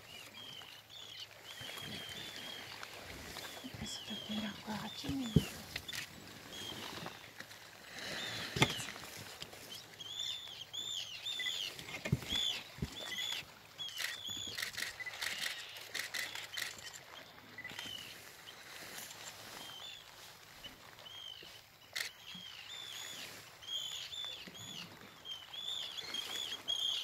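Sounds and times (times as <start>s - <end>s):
birds calling: 0.0s - 27.0s.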